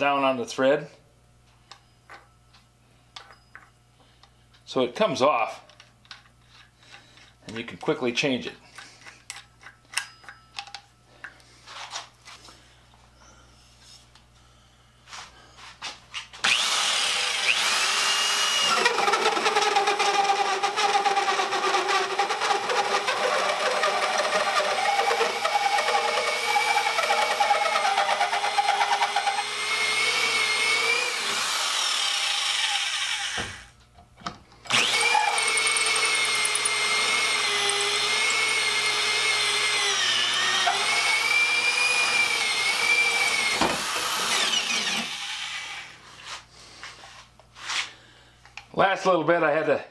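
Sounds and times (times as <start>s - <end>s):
electric drill cutting wood: 16.4s - 33.7s, 34.7s - 46.0s.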